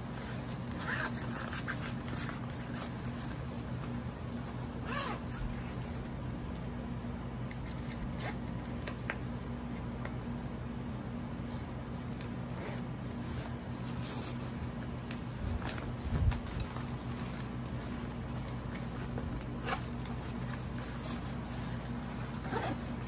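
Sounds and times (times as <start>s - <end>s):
steady low hum: 0.0s - 23.0s
zipper being drawn: 0.2s - 3.3s, 4.8s - 5.9s, 19.5s - 23.0s
nylon bag rustling: 12.6s - 23.0s.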